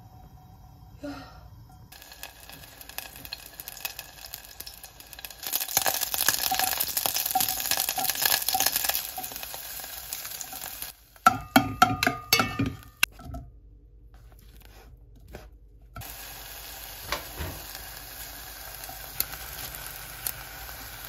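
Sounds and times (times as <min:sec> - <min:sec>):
food sizzling in pan: 0:01.9 - 0:11.2, 0:16.0 - 0:21.0
clinks and knocks: 0:11.3 - 0:13.5.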